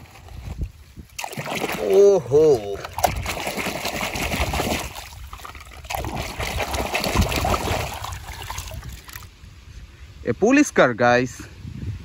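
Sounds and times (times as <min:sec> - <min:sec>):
water splashing and sloshing: 0:00.0 - 0:09.4.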